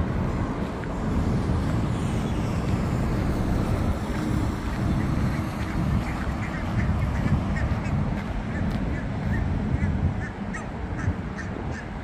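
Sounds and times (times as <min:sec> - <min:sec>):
wind rumble on microphone: 0:00.0 - 0:12.0
waterfowl calling: 0:04.7 - 0:12.0.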